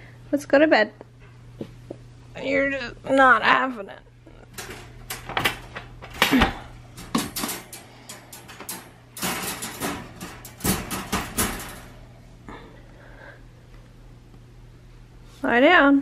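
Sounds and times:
wire dog crate rattling: 4.5s - 12.0s.

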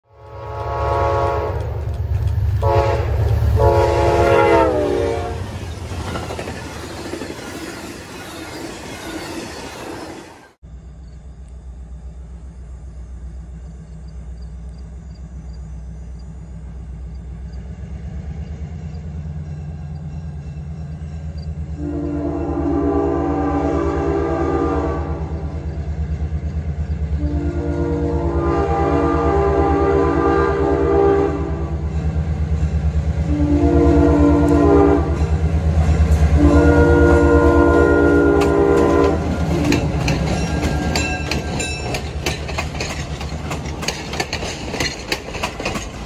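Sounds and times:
locomotive air horn blasts: 0.0s - 1.8s, 2.6s - 5.5s, 21.7s - 25.6s, 27.2s - 31.7s, 33.3s - 35.3s, 36.3s - 40.9s
distant locomotive engine droning: 0.0s - 46.0s
rail noise: 0.0s - 46.0s
locomotive engine rumble: 0.1s - 9.9s, 10.7s - 46.0s.

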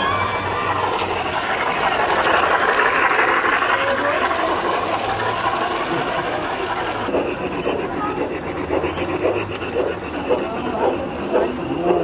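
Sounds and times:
model train wheels rattling: 0.6s - 12.0s.

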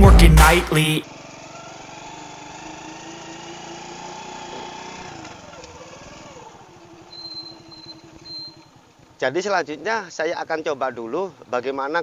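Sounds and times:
small motorcycle engine idling: 1.0s - 9.2s.

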